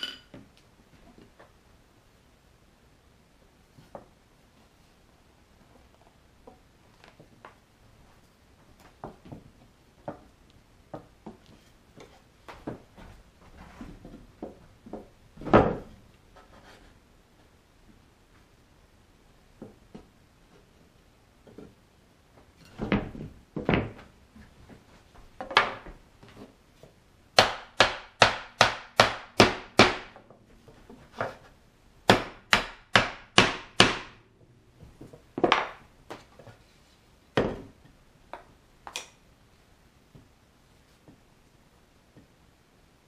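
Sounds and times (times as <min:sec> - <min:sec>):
sharp wooden knocks: 0:32.1 - 0:34.2.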